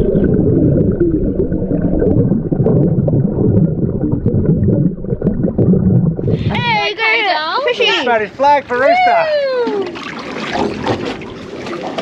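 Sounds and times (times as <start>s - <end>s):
bubbling underwater: 0.0s - 6.9s
low underwater water rumble: 0.0s - 7.2s, 9.2s - 12.0s.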